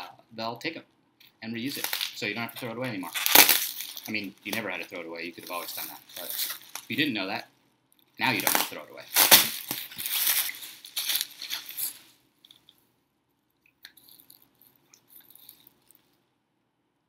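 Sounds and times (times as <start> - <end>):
bubble wrap crinkling: 1.6 - 7.3, 8.0 - 12.8, 13.9 - 16.2.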